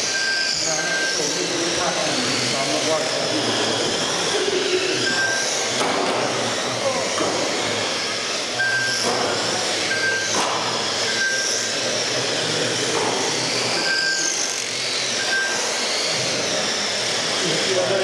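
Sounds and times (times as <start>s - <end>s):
rc car motors whining: 0.0s - 18.0s
short beeps: 0.1s - 1.2s, 5.0s - 5.5s, 8.6s - 9.0s, 9.9s - 10.4s, 11.1s - 11.6s, 13.8s - 14.4s, 15.2s - 15.7s.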